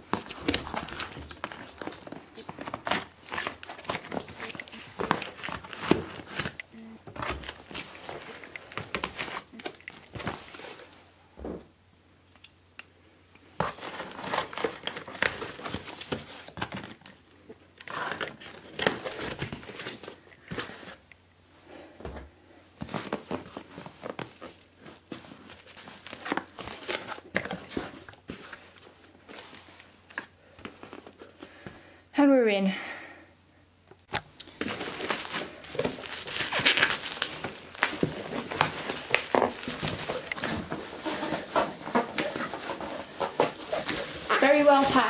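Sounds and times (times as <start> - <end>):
cardboard and packing rustling: 0.0 - 11.8, 13.4 - 21.1, 21.9 - 31.8, 34.1 - 45.0
packing tape tearing: 13.6 - 17.2, 17.8 - 21.0, 34.4 - 45.0.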